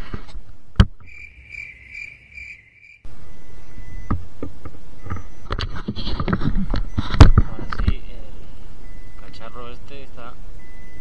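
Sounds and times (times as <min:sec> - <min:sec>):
pulsing high alarm beeps: 0:01.1 - 0:04.2, 0:05.0 - 0:05.6, 0:08.8 - 0:09.4, 0:10.6 - 0:11.0.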